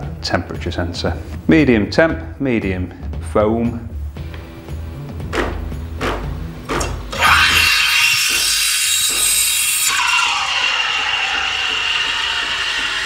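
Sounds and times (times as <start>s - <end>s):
knocks: 5.2s - 7.1s
steam wand hissing: 7.1s - 13.0s
low machine drone: 10.0s - 13.0s.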